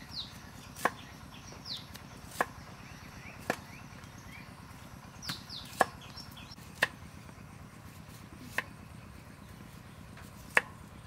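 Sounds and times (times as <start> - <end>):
knife chopping on wooden block: 0.8 - 1.0, 2.3 - 2.6, 3.4 - 3.7, 5.3 - 6.0, 6.8 - 7.0, 10.3 - 10.8.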